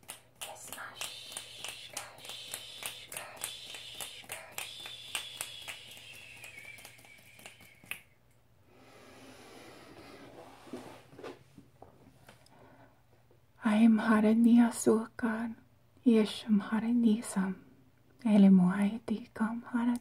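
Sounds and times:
finger snaps: 0:00.0 - 0:08.4.

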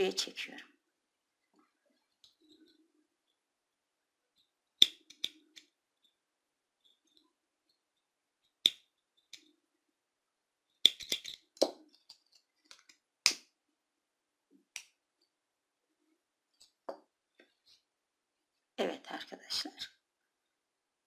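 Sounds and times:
sharp clicks and small taps: 0:10.8 - 0:13.5.

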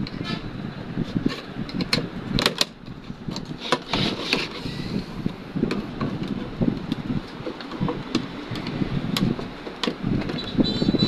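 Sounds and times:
screwdriver scraping and clicking: 0:00.0 - 0:04.8.

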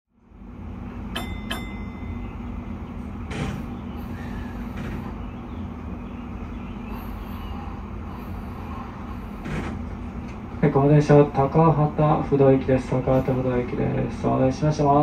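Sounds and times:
low hum in train cab: 0:00.1 - 0:15.0
sharp ringing clicks: 0:01.1 - 0:02.4.

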